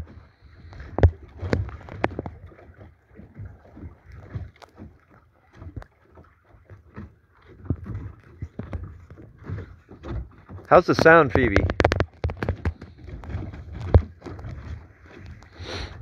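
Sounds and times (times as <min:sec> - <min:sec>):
water noise: 0:00.0 - 0:16.0
light clicks and knocks: 0:06.9 - 0:15.6.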